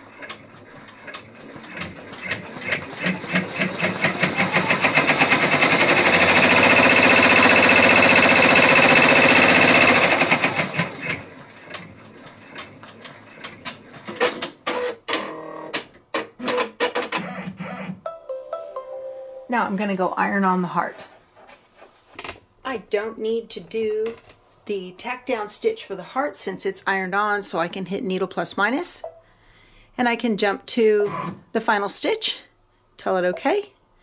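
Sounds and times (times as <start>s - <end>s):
embroidery machine stitching: 0.0s - 15.8s.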